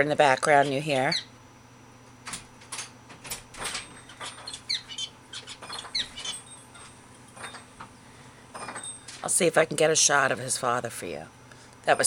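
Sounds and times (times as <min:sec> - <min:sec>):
finch beeping calls: 0:01.0 - 0:01.3, 0:04.0 - 0:06.5.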